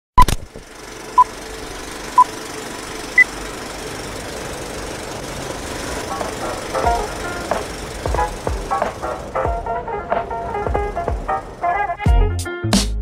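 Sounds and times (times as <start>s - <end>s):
film projector rattling hiss: 0.6s - 9.4s
music: 6.2s - 13.0s.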